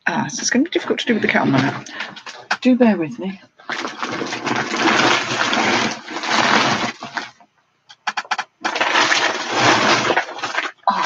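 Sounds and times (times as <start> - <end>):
rustling and handling noise: 0.8 - 2.6, 3.5 - 11.0
sharp clicks: 7.9 - 8.7.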